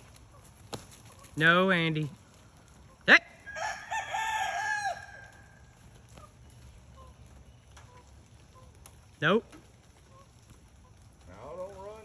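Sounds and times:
rooster crowing: 0:03.4 - 0:05.6.

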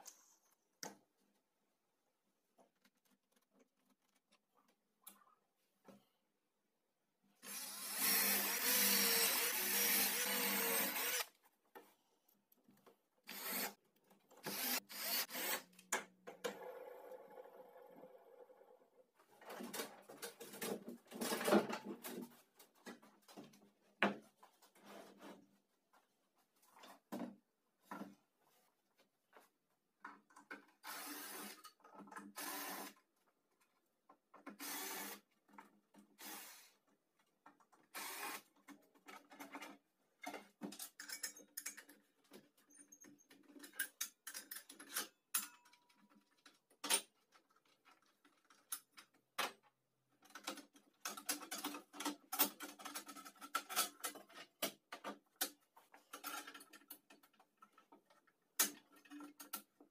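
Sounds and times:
metal parts clicking and tapping: 0:38.7 - 0:49.6, 0:50.2 - 0:59.8.

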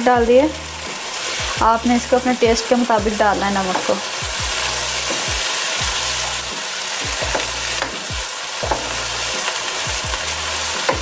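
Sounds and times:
sauce sizzling in a wok: 0:00.0 - 0:11.0.

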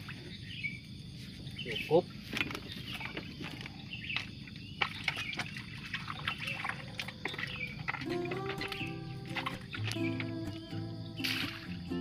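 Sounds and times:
small splashes in water: 0:02.3 - 0:10.6, 0:11.2 - 0:12.0
wet groundbait squelching: 0:02.3 - 0:11.9.

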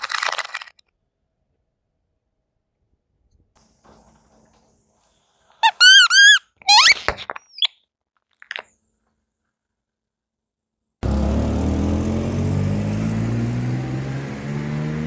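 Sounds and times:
rubber ducks squeaking: 0:05.6 - 0:07.8.

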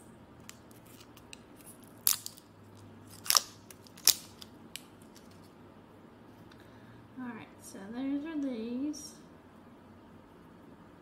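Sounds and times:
tape ripping: 0:00.5 - 0:02.5, 0:03.1 - 0:05.5.

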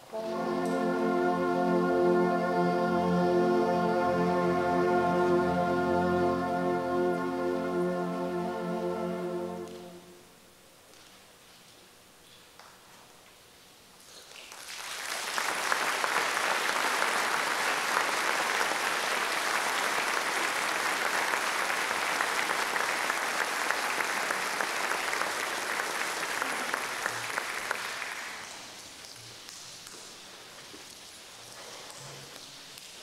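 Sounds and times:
audience applauding: 0:14.3 - 0:29.4.

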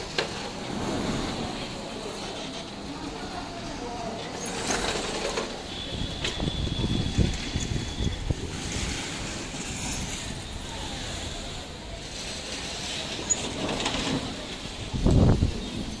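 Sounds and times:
storm wind gusting: 0:05.9 - 0:11.0, 0:13.6 - 0:16.0.

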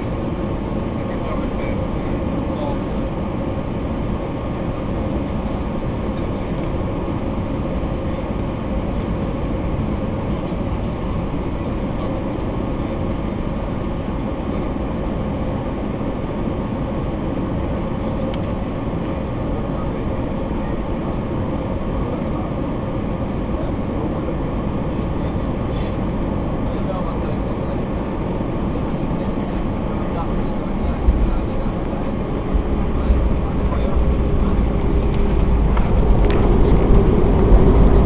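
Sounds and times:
airplane cabin engine rumble: 0:00.0 - 0:38.0.

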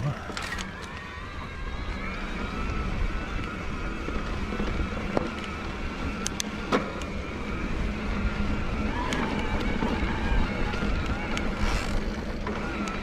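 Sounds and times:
bike clicks and knocks: 0:00.0 - 0:01.1, 0:08.9 - 0:13.0
electric bike motor whining: 0:00.0 - 0:13.0
low trail rumble: 0:00.0 - 0:13.0
wind: 0:00.0 - 0:13.0.

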